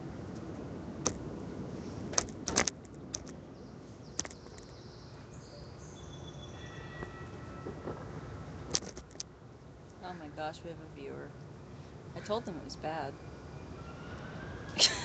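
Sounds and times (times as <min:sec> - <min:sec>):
city traffic hum: 0:00.0 - 0:15.0
faint high-pitched squeaks: 0:05.5 - 0:08.0.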